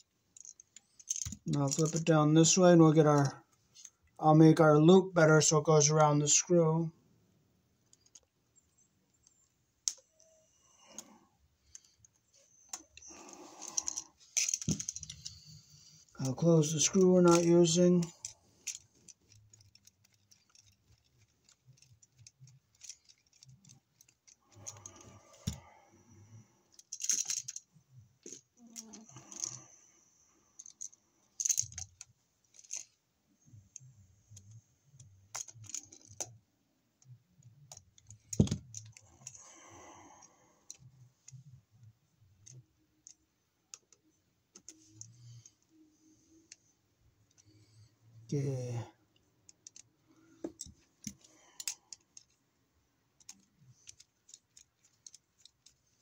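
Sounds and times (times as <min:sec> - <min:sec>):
hand tools clicking and scraping: 0:12.6 - 0:25.7.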